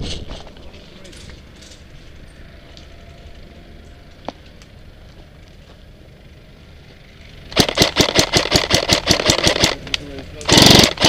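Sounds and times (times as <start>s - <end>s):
low outdoor background: 0.0s - 11.0s
airsoft rifle firing full auto: 7.5s - 9.8s, 10.5s - 11.0s.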